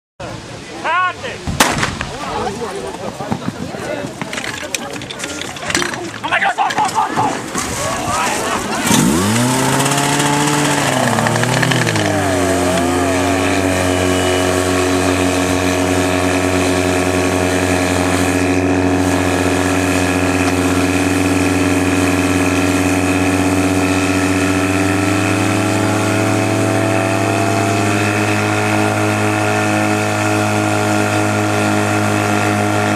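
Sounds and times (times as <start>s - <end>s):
pump engine running hard: 7.6s - 32.9s.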